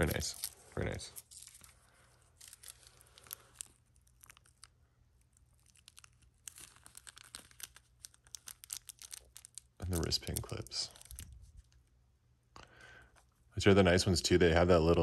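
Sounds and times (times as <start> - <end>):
plastic bag crinkling: 0.0 - 11.7.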